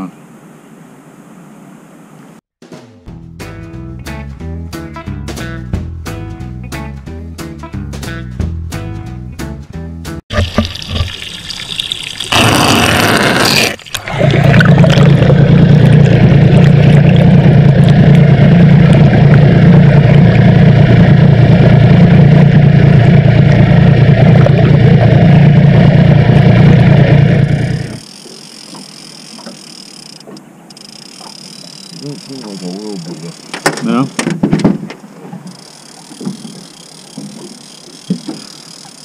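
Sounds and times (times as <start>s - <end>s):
water splashing: 10.3s - 19.7s
underwater outboard motor drone: 14.0s - 39.0s.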